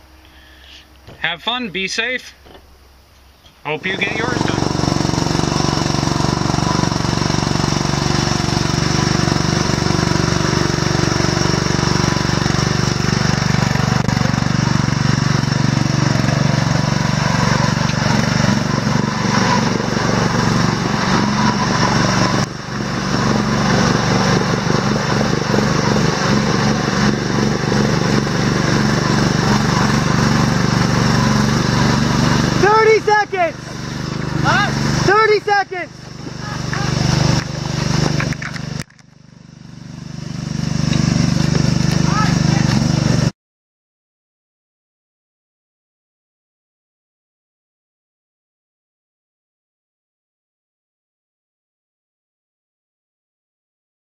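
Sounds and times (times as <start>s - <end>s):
quad engine running: 3.7s - 43.3s.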